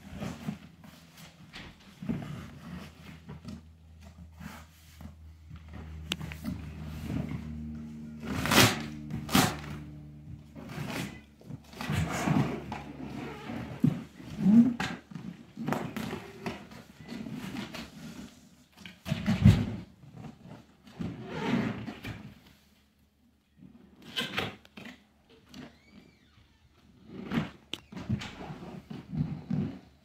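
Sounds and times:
cardboard boxes scraping and rustling: 0.0s - 18.7s.

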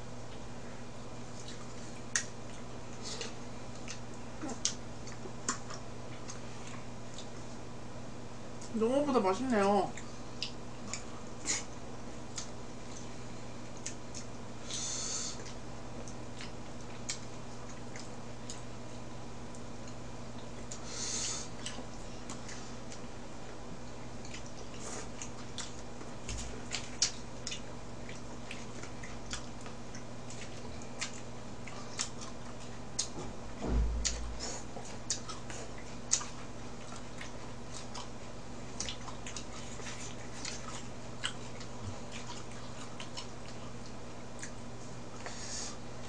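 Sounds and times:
steady low hum: 0.0s - 46.0s
person chewing food: 1.3s - 7.6s, 10.0s - 33.2s, 34.0s - 46.0s
dull thump: 33.6s - 34.2s.

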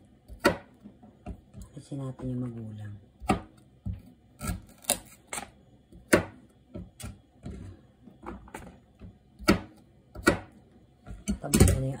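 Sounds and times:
knife chopping on cutting board: 0.3s - 1.6s, 3.2s - 5.0s, 6.0s - 7.2s, 9.0s - 11.8s.

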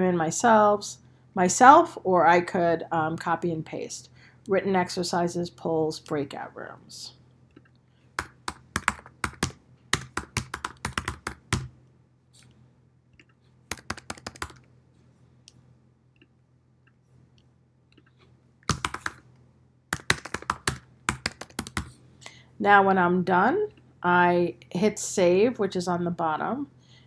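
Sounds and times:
typing on computer keyboard: 8.2s - 11.7s, 13.2s - 14.7s, 18.7s - 19.2s, 19.9s - 21.9s.

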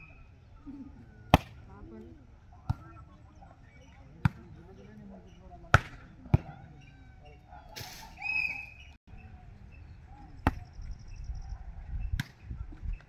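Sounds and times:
hand slapping volleyball: 1.3s - 1.7s, 2.6s - 3.0s, 5.7s - 6.5s, 12.2s - 12.4s.

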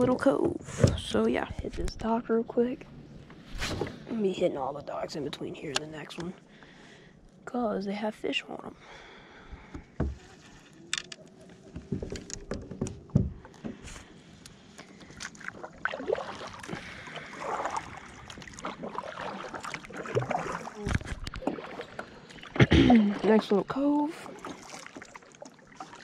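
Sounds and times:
paddle strokes splashing water: 10.0s - 26.0s.

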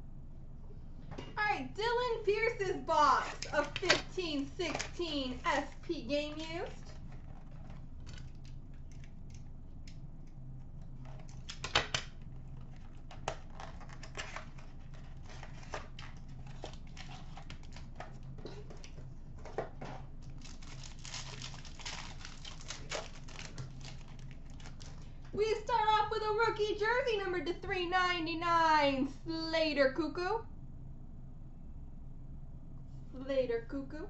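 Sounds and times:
faint steady hum: 0.0s - 34.0s
foil pack tearing and crinkling: 11.0s - 19.0s, 20.2s - 25.2s.

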